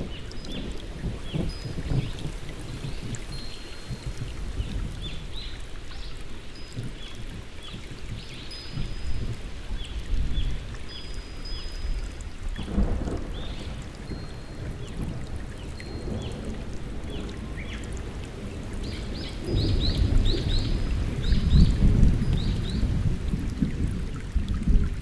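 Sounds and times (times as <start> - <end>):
low rumbles of thunder: 0.0 - 5.4, 12.6 - 25.0
steady rain: 0.0 - 25.0.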